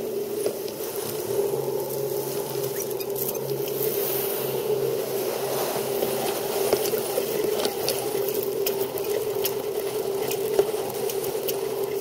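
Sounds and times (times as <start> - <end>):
sail flapping: 0.1 - 12.0
rigging clicks and rattles: 5.9 - 12.0.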